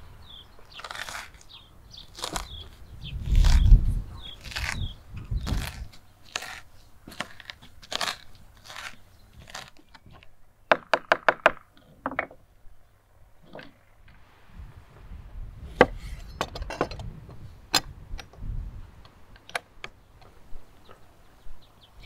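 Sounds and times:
sharp knocks: 10.7 - 12.4.

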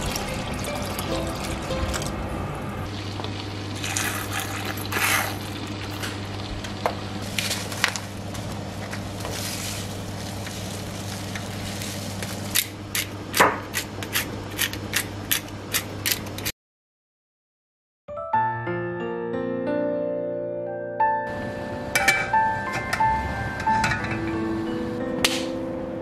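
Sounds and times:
low hum: 0.0 - 3.8
rustling and scraping: 7.2 - 12.6.

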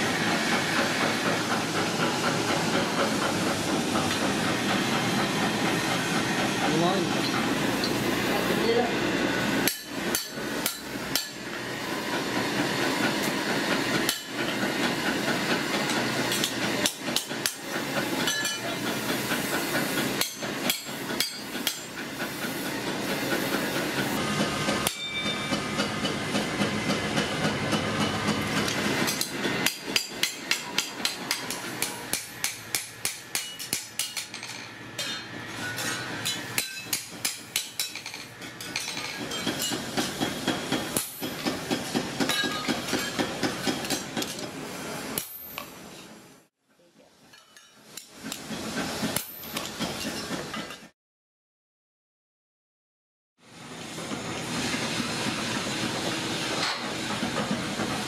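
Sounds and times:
hammer striking metal: 9.6 - 11.5, 20.2 - 21.9, 24.8 - 26.2, 28.7 - 44.4.

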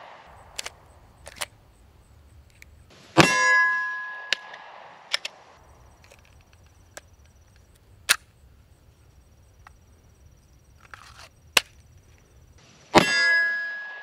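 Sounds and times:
pistol metallic clicks and snaps: 0.4 - 1.6, 4.4 - 5.4.

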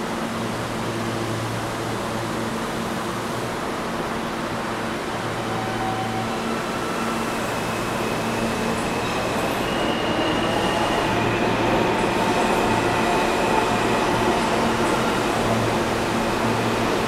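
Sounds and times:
subway train wheels rumbling: 0.0 - 17.0
high wheel squeal: 5.4 - 12.8.

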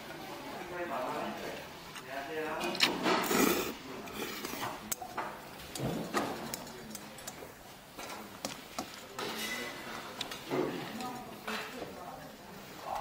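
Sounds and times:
noodles being slurped: 3.2 - 4.6.

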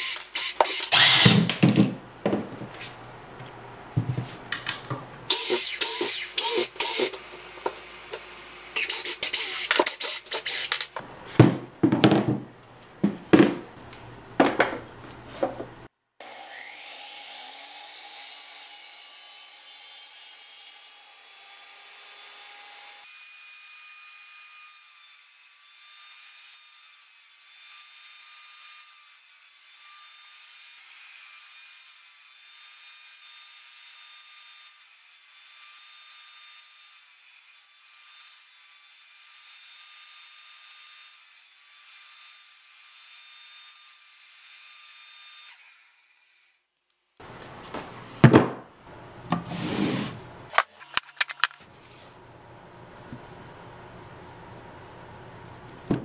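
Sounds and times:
table saw whining: 0.0 - 1.6, 5.3 - 10.9, 16.2 - 23.0
wooden pieces knocking and clattering: 50.5 - 51.6.

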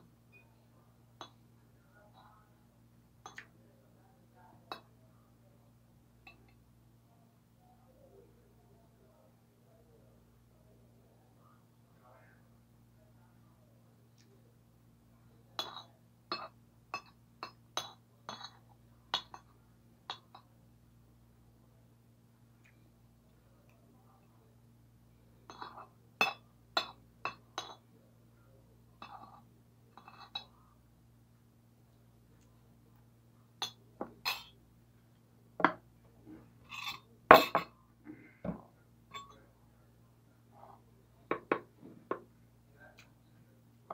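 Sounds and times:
cutlery clinking on a plate: 15.6 - 18.6, 30.0 - 30.5, 33.6 - 34.6, 36.7 - 37.8, 39.1 - 39.4
plates and cutlery clinking: 33.6 - 34.6, 36.7 - 37.8, 38.5 - 39.4.

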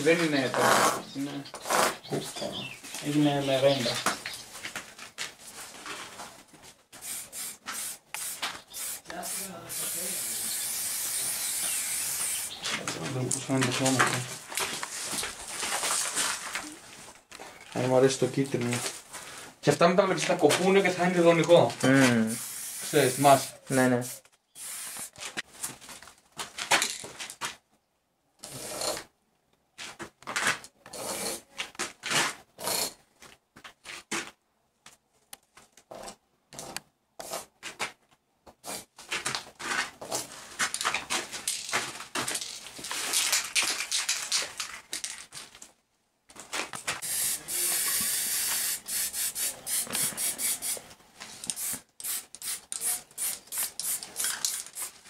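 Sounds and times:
spray-paint can hissing: 7.0 - 12.6, 22.3 - 25.2, 47.0 - 50.8, 51.4 - 55.0.

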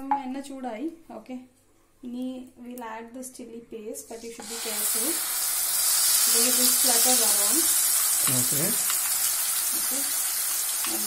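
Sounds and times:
paste sizzling in hot oil: 4.1 - 11.0.

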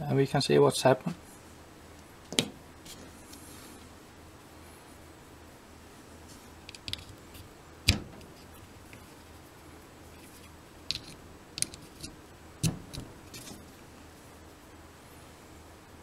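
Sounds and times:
crimp terminals clicking: 6.7 - 7.1, 10.9 - 13.6
sharp knocks: 7.9 - 8.3, 12.6 - 13.2.

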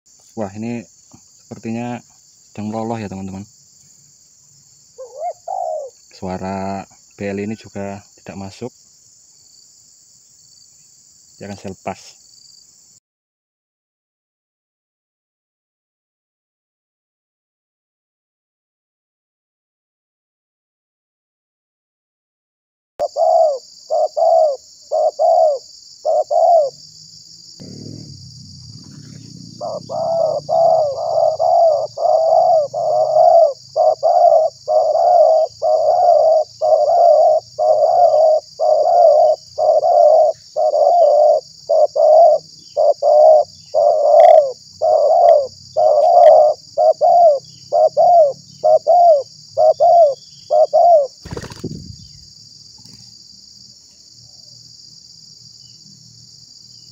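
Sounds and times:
insects buzzing: 0.1 - 13.0, 23.0 - 56.9
dove cooing: 5.0 - 6.8, 23.0 - 26.8, 27.6 - 52.2.

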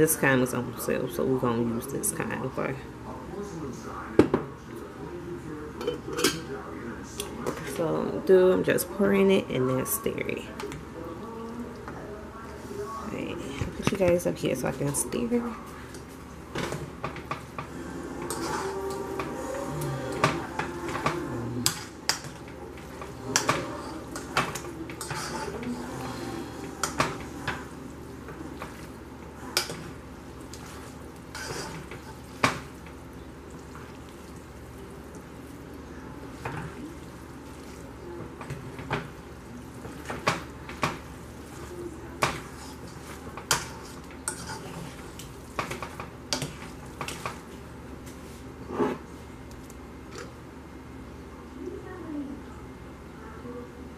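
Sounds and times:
utensil scraping against a pot: 18.0 - 27.7, 28.6 - 32.7, 39.8 - 47.4.

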